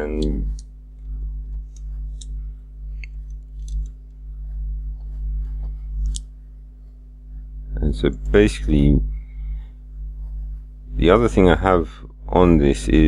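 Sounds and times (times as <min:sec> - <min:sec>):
steady low hum: 0:00.0 - 0:13.0
keyboard and mouse clicks: 0:03.0 - 0:04.0.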